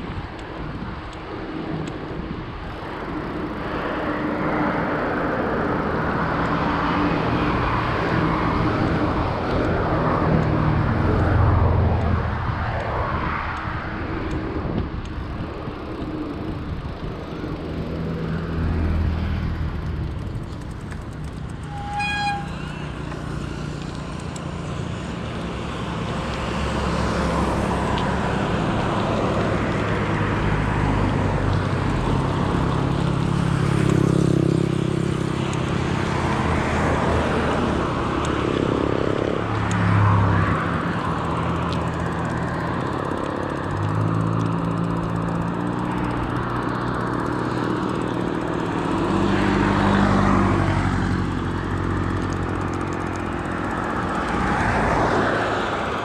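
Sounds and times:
vehicles passing: 0.0 - 56.0
short car horn toot: 21.7 - 22.8.

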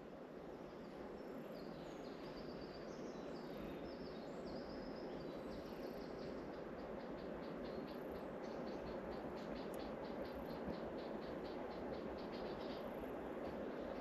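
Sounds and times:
steady rushing noise: 4.7 - 14.0.

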